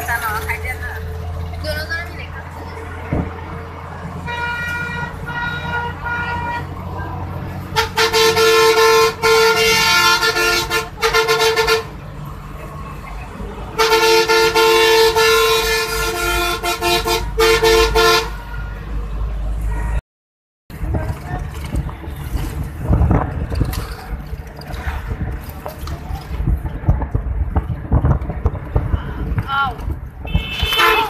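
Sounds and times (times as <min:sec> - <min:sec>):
vehicle rumble on road: 0:00.0 - 0:20.0, 0:20.7 - 0:31.0
vehicle horn honking: 0:04.3 - 0:06.8, 0:07.7 - 0:11.9, 0:13.8 - 0:18.8, 0:30.2 - 0:31.0.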